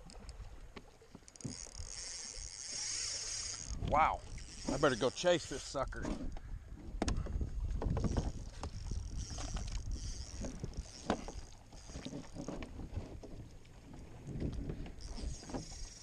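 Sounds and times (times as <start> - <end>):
knocks and clicks from kayak: 0.0 - 2.9, 5.9 - 16.0
wind rumbling on microphone: 3.5 - 5.1, 5.8 - 16.0.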